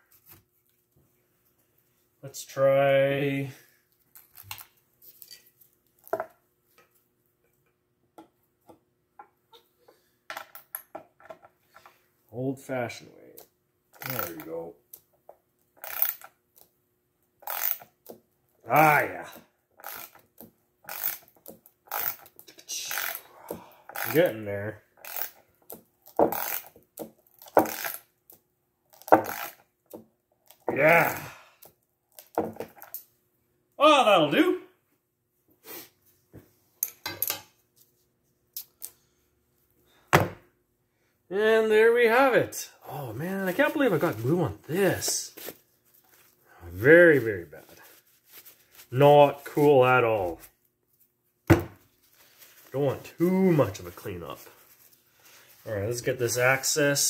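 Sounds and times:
tool clicking tightening nuts: 15.8 - 16.3, 20.9 - 22.3, 25.0 - 26.7
person grunting: 30.7 - 31.5.

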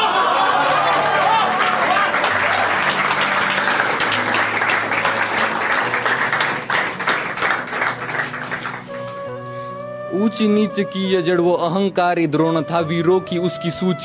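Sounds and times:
crowd applause: 0.0 - 9.1
low background music: 0.1 - 14.0.

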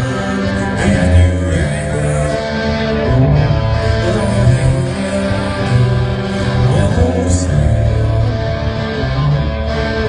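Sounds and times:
person singing: 0.0 - 8.8
live rock band playing: 0.0 - 10.0.

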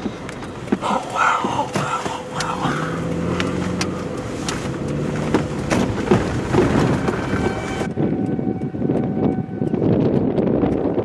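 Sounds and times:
vehicle road and engine noise: 0.0 - 11.0
low hum: 0.1 - 10.5
sharp ticks: 0.2 - 6.4.

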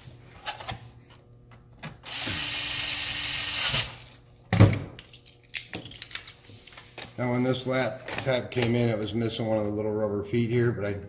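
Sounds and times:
electric screwdriver running: 2.0 - 4.2.

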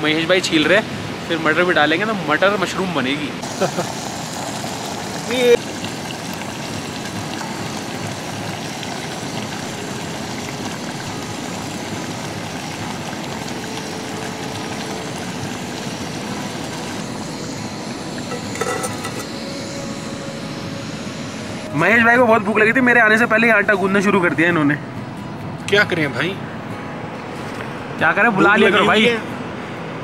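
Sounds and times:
gas stove burner rushing: 3.4 - 20.0
metal lid clattering: 18.3 - 19.3.

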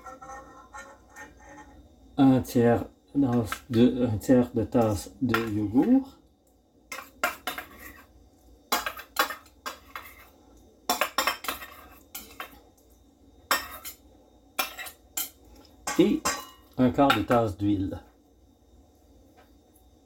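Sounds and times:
metal spoon scraping and clinking: 6.9 - 8.1, 8.7 - 10.3, 10.9 - 12.6, 13.5 - 14.0, 14.6 - 17.4.

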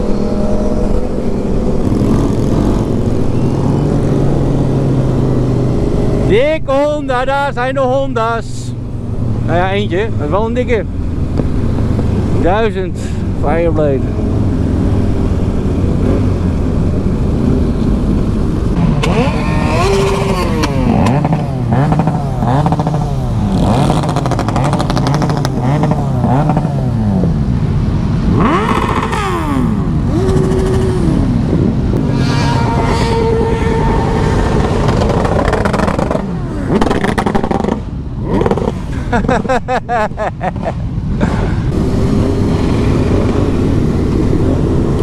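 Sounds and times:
motorcycle engine revving: 0.0 - 6.5, 8.8 - 27.6, 28.2 - 39.5, 40.6 - 45.0.

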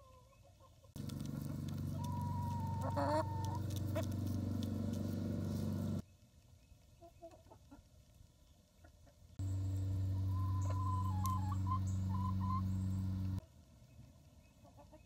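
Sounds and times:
chickens clucking: 0.0 - 6.0, 7.0 - 7.9, 8.8 - 13.4, 14.6 - 15.0
steady low hum: 1.0 - 6.0, 9.4 - 13.4.

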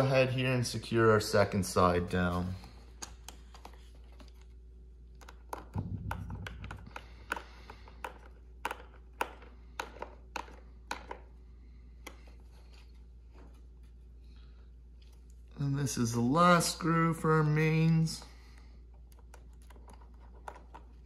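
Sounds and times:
low rumble: 5.8 - 7.2.

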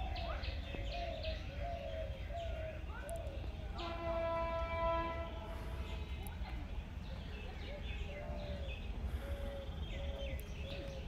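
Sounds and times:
birds chirping: 0.0 - 11.0
distant train horn: 3.8 - 6.0.

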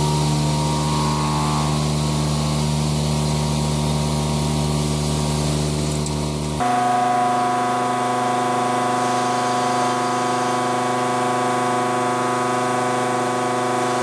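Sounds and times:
milling machine cutting steel: 0.0 - 14.0
hiss: 8.4 - 14.0.

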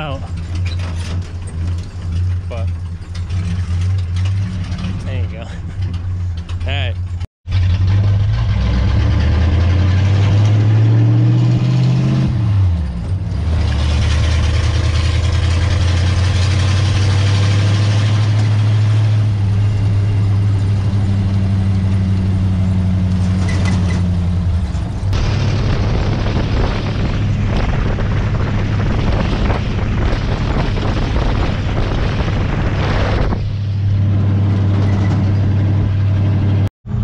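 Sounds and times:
wind and road noise: 0.0 - 37.0
car engine revving: 7.5 - 37.0.

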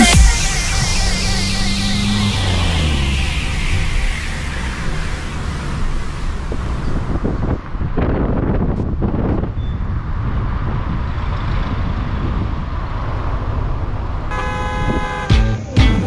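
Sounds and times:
song beat: 0.0 - 5.2, 15.2 - 16.0
steady rushing noise with rumble: 0.0 - 14.3.

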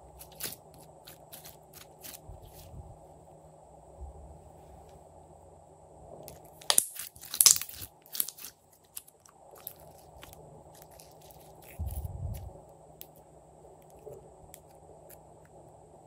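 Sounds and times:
plastic confetti rattling into slime: 6.6 - 8.5.

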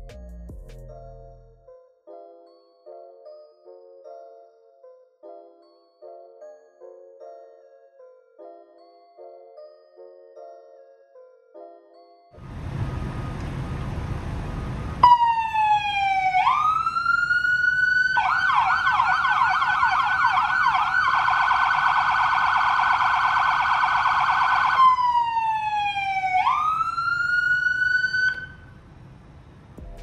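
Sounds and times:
low rumbling noise: 12.4 - 15.1
electronic police siren: 12.5 - 28.7.

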